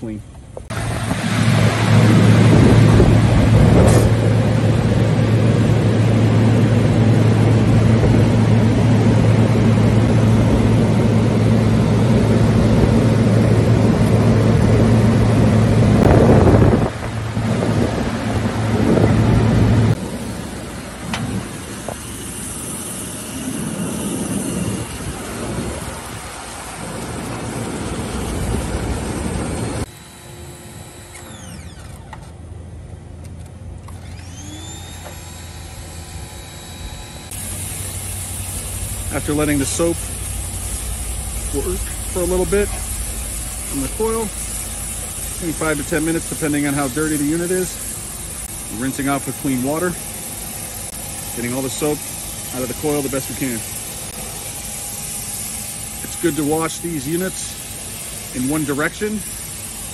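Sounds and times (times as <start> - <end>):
pressure washer motor hum: 0.0 - 59.9
water spray hissing: 37.2 - 59.9.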